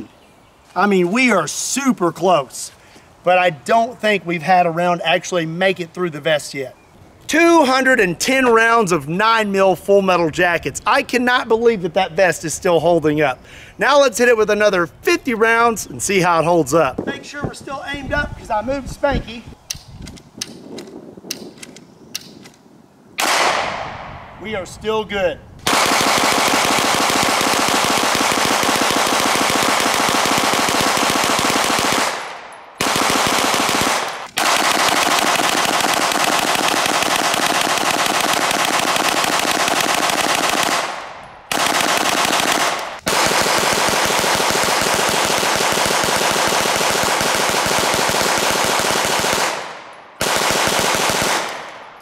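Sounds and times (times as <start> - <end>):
gatling gun firing rapidly: 25.7 - 51.7.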